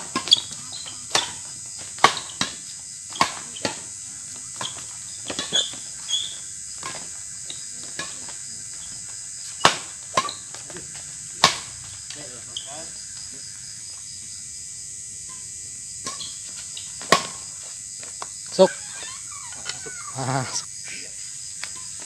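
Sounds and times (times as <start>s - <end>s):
rackets striking shuttlecock: 0.0s - 3.9s, 11.4s - 11.8s, 15.3s - 16.4s, 17.0s - 17.4s
high insect trill: 0.0s - 22.0s.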